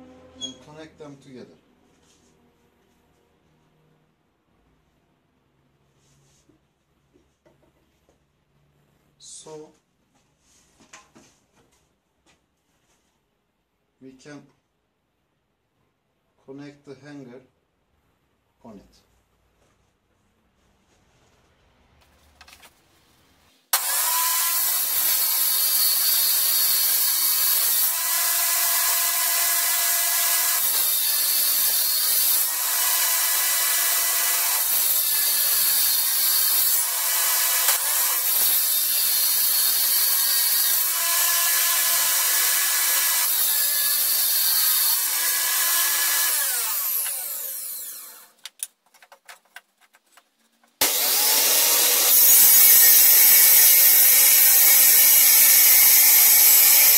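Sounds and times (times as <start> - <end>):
table saw whining: 23.7 - 48.4, 50.8 - 56.9
saw winding down: 23.8 - 48.4, 50.8 - 56.9.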